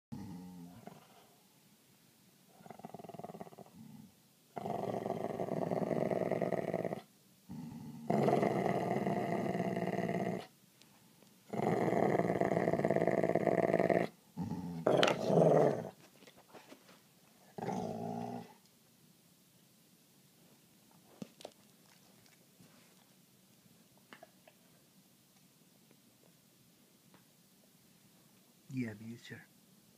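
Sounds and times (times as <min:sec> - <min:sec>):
dog growling: 0:00.1 - 0:01.4, 0:02.5 - 0:10.5, 0:11.5 - 0:16.0, 0:17.5 - 0:18.6.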